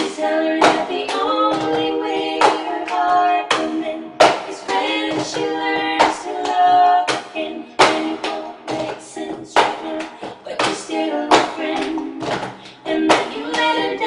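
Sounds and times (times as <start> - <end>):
women singing in harmony: 0.0 - 14.0.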